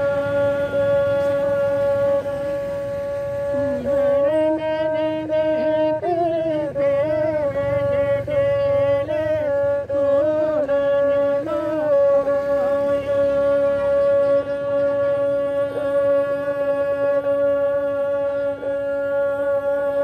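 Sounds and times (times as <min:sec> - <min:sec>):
bowed string instrument note: 0:00.0 - 0:05.8.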